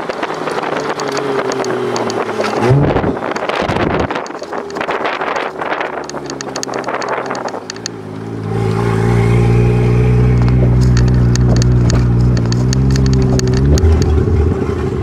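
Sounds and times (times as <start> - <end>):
car engine drone: 0.0 - 15.0
light ticking clicks: 5.8 - 8.4, 10.4 - 14.1.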